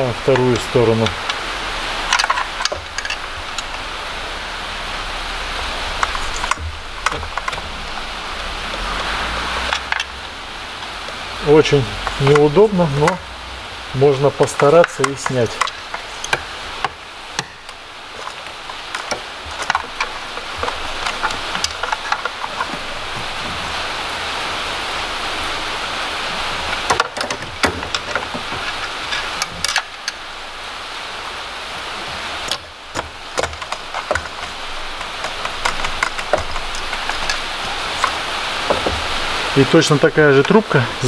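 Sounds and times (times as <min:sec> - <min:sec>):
steady rain: 0:00.0 - 0:41.0
plastic clips clicking: 0:14.1 - 0:23.3, 0:32.4 - 0:40.8.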